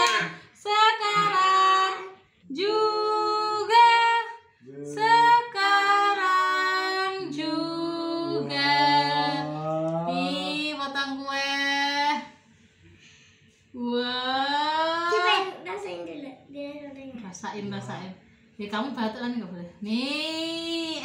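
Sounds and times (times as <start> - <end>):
group singing unaccompanied: 4.6 - 10.8.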